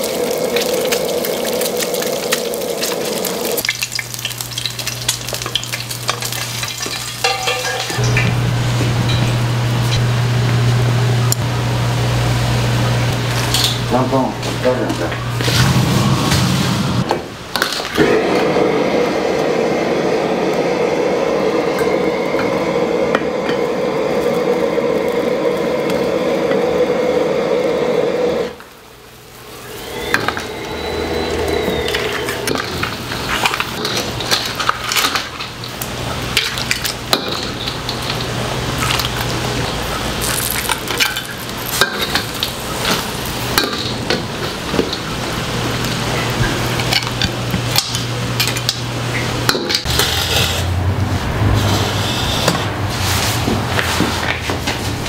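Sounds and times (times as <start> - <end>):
wok burner rushing noise: 0.0 - 55.0
metal ladle scraping wok: 49.8 - 54.0.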